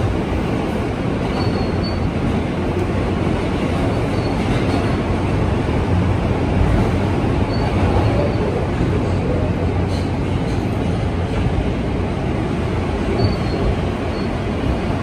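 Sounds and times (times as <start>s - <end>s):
subway train wheels rumbling: 0.0s - 15.0s
faint high squeals: 13.2s - 14.4s.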